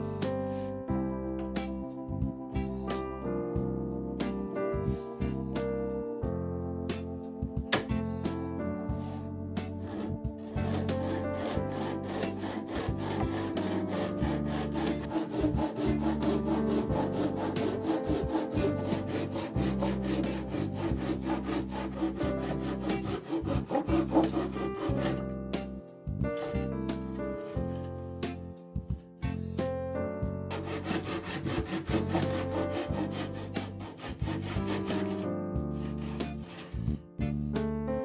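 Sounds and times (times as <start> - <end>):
handsaw sawing wood: 9.0 - 25.3, 26.4 - 28.4, 30.5 - 37.0.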